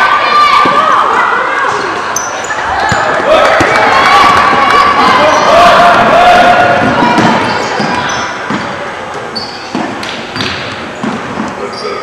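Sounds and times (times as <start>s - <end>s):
sneaker squeaks: 2.1s - 3.2s, 6.9s - 12.0s.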